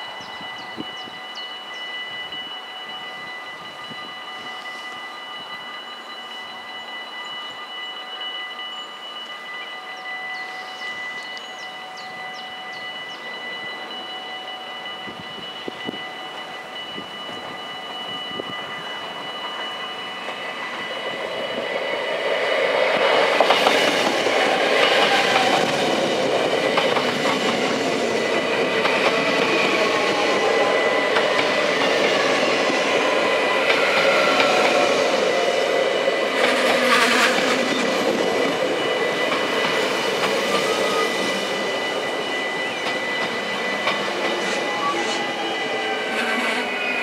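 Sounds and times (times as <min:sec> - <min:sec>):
level crossing warning bells: 0:00.0 - 0:47.0
train wheels clattering on rails: 0:16.8 - 0:47.0.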